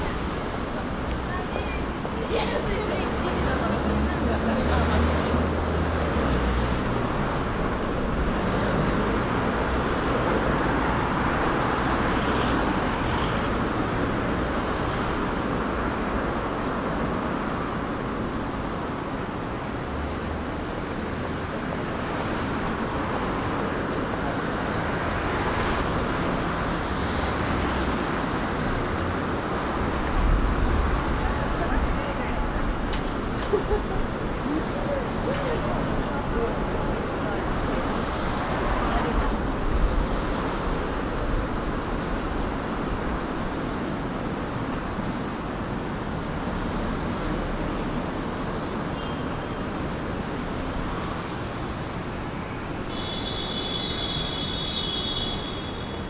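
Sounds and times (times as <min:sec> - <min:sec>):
passing cars rushing: 0:00.0 - 0:56.0.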